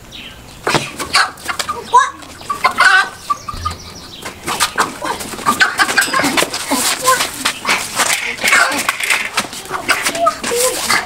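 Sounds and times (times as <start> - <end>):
chicken squawking: 0.9 - 6.9.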